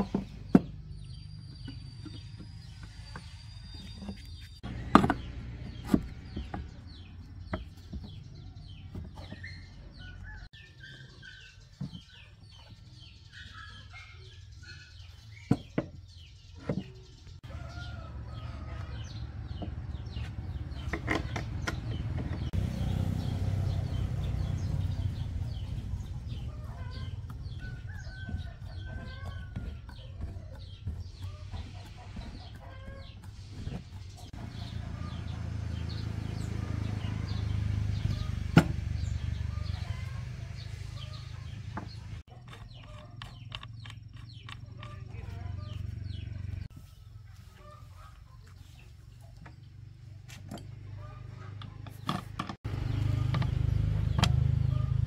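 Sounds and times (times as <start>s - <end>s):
chickens clucking: 16.5s - 55.0s.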